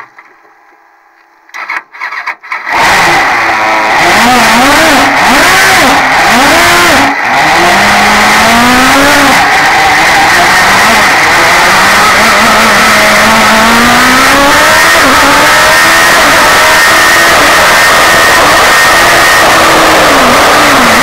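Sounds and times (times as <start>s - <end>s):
engine cranking: 1.5s - 3.2s
engine revving: 2.1s - 21.0s.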